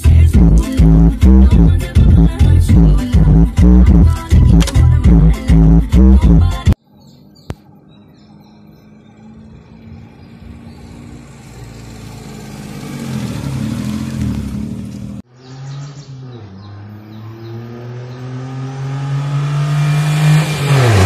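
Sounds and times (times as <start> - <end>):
car engine accelerating: 7.7 - 21.0.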